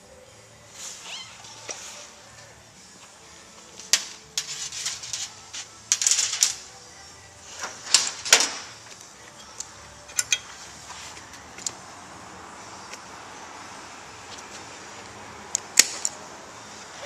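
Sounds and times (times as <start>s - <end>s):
hand tools clinking and clattering: 3.8s - 6.8s, 7.6s - 10.6s.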